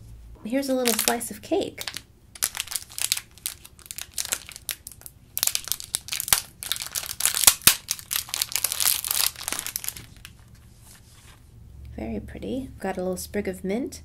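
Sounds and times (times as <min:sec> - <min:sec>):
plastic wrapper crinkling: 0:00.8 - 0:10.6.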